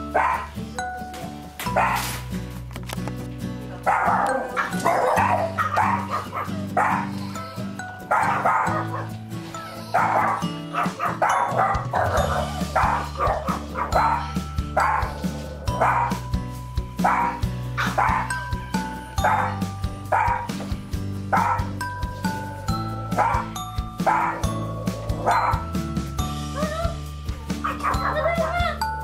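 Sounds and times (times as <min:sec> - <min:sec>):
background music: 0:00.0 - 0:29.0
small dog barking: 0:00.2 - 0:00.5, 0:01.7 - 0:02.1, 0:03.8 - 0:07.2, 0:08.1 - 0:09.1, 0:10.0 - 0:15.1, 0:17.0 - 0:18.3, 0:19.2 - 0:20.5, 0:21.4 - 0:21.7, 0:23.2 - 0:24.4, 0:27.6 - 0:28.8.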